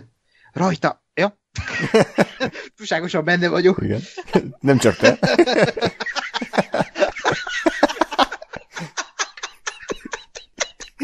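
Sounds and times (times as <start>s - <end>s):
men laughing: 1.6s - 2.8s, 3.9s - 11.0s.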